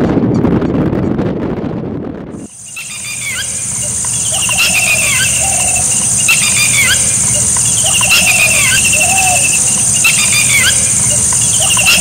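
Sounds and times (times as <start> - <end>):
low wind rumble: 0.0 - 12.0
birds chirping and trilling: 2.4 - 12.0
high-pitched insect buzz: 2.5 - 12.0.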